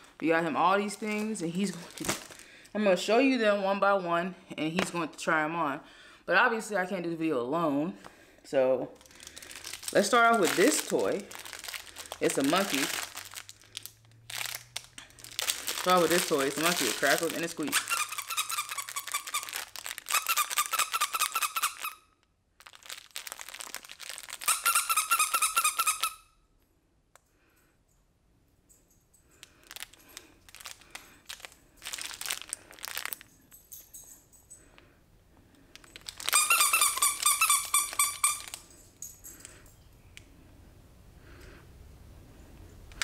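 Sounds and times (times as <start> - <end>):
toy crinkling: 0.0 - 2.7, 8.9 - 26.3, 29.1 - 34.9, 35.5 - 39.7
dog toy squeaking: 17.7 - 22.1, 24.4 - 26.3, 36.2 - 38.6.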